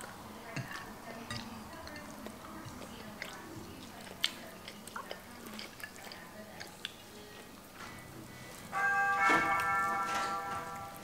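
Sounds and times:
chewing: 0:00.0 - 0:08.7
clicks and taps on plates: 0:00.5 - 0:03.3.

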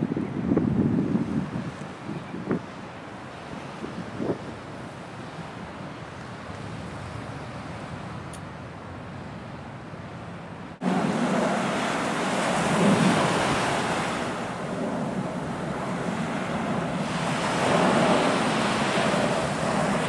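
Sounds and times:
steady wind: 0:00.0 - 0:20.0
jet airliner roaring overhead: 0:10.8 - 0:20.0.

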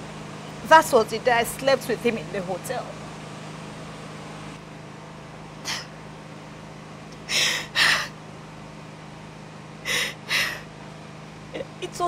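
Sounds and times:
woman crying and sniffling: 0:07.2 - 0:08.1, 0:09.9 - 0:10.7.

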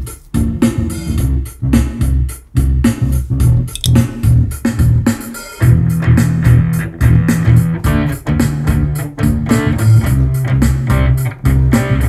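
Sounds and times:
deep bass part: 0:03.3 - 0:11.1.

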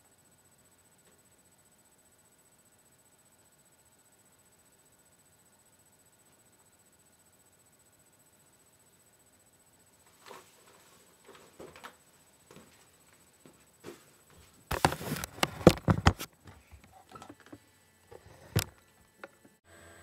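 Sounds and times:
camera handling rustling and knocks: 0:14.7 - 0:17.6.

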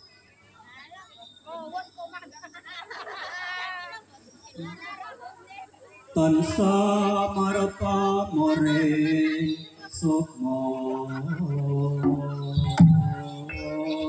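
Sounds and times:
person singing unaccompanied chant: 0:06.2 - 0:14.0.

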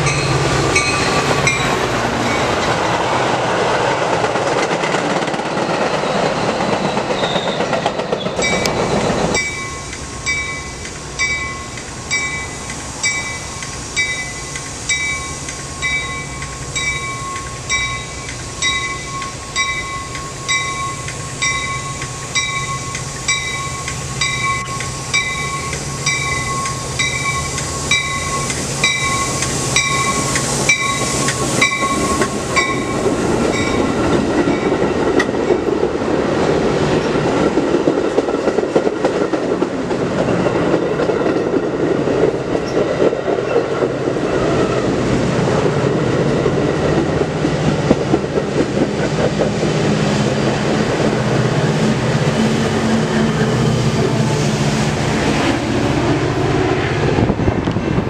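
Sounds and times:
train wheels rumbling on rails: 0:00.0 - 0:58.0
warning bell ringing: 0:09.4 - 0:33.9.

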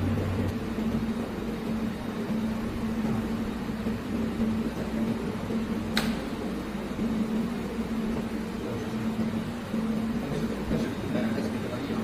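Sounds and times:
welding machine humming: 0:00.0 - 0:12.0
sharp click: 0:05.9 - 0:06.3.

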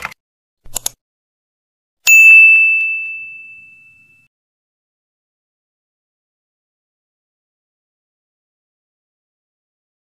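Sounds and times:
quick clicks: 0:00.0 - 0:01.0
bright bell-like ding: 0:02.1 - 0:04.3.

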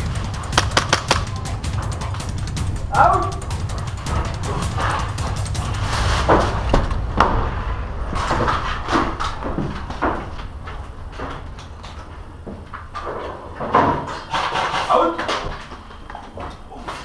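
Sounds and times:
footsteps and gear rustling: 0:00.0 - 0:14.4.

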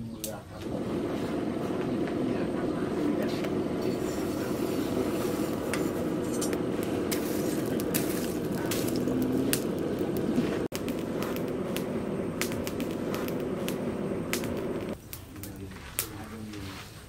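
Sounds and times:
forge fire rushing: 0:00.6 - 0:15.0
shovel scraping through coals: 0:03.8 - 0:13.8.

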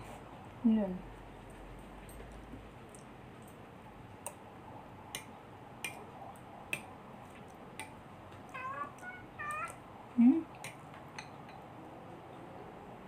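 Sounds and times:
cat meowing: 0:08.5 - 0:09.8.

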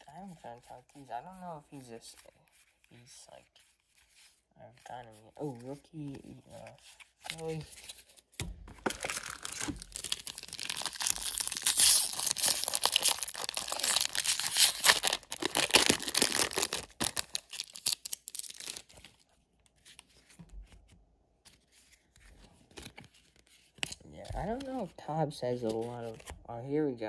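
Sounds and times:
plastic wrapper tearing and crinkling: 0:08.7 - 0:19.3.

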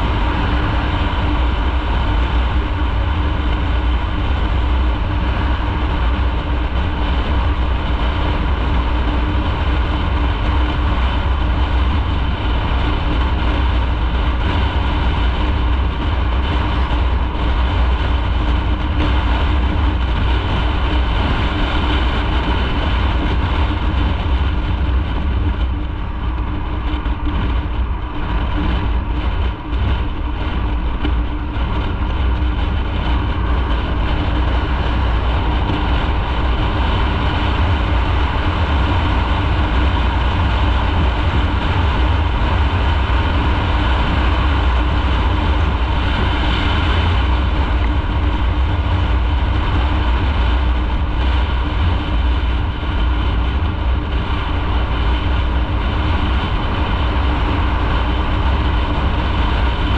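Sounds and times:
motorcycle engine running: 0:00.0 - 0:59.9
wind rumble on microphone: 0:00.0 - 0:59.9.

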